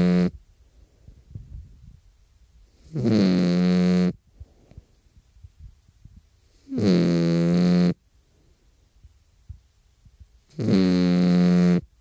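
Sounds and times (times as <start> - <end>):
dog snoring: 2.8 - 4.2, 6.6 - 8.0, 10.5 - 11.8.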